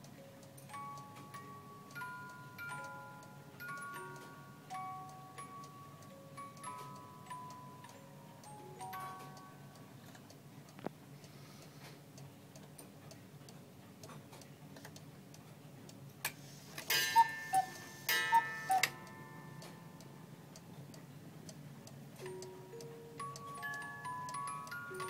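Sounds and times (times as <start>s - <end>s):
clock ticking: 0.0s - 10.9s, 16.9s - 25.0s
clock click: 16.8s - 21.6s
cuckoo clock calls: 16.9s - 20.0s.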